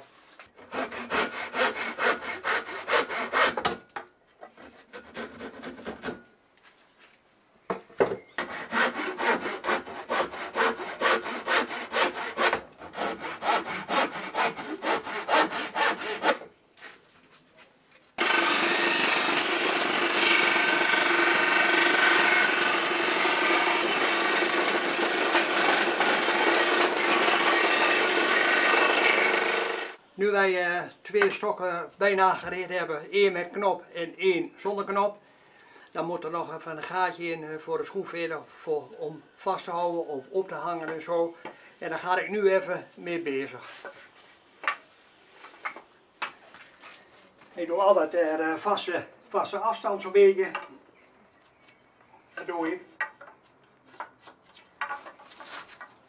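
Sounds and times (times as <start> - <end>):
hand saw cutting wood: 0.6 - 3.8, 4.5 - 6.2, 8.4 - 16.5, 18.2 - 30.0.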